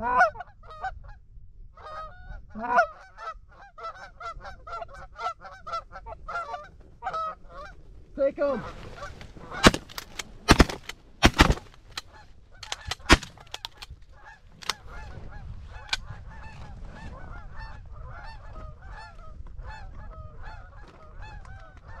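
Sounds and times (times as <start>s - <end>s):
geese honking: 1.8s - 7.8s, 8.6s - 22.0s
shotgun shots: 9.6s - 12.0s, 12.6s - 13.8s.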